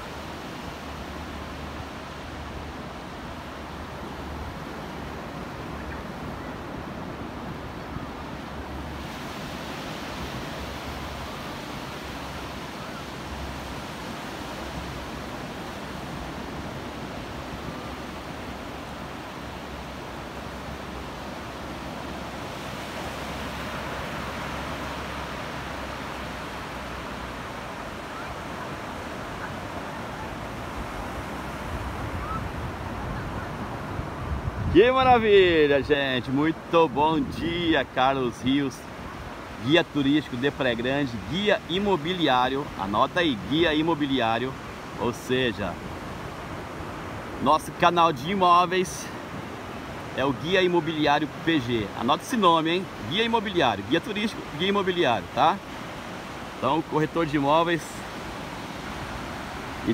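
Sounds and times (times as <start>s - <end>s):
wind rumbling on microphone: 0.0s - 36.0s
ocean waves breaking: 0.0s - 59.9s
wind on microphone: 21.8s - 35.6s.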